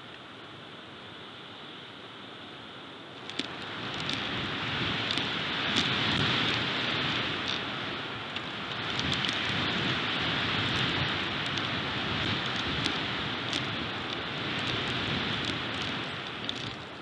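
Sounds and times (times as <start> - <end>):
faint ticks: 0.0 - 0.3, 3.2 - 17.0
strong wind through pines: 0.0 - 17.0.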